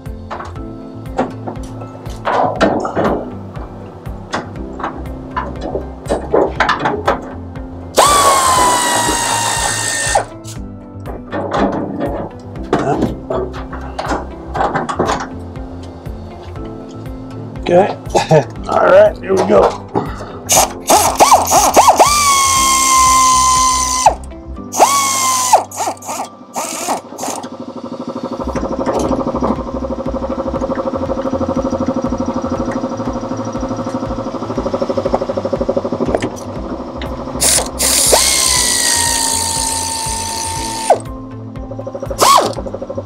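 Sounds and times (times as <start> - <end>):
power tool motor whining: 8.0 - 10.6, 20.5 - 34.3, 37.3 - 41.0, 42.1 - 42.7.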